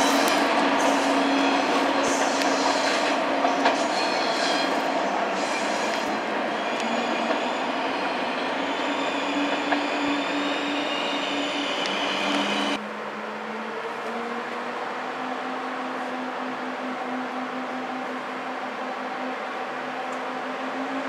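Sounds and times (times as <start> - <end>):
train wheels on rails: 0.0 - 12.8
humming whine of train: 0.0 - 21.0.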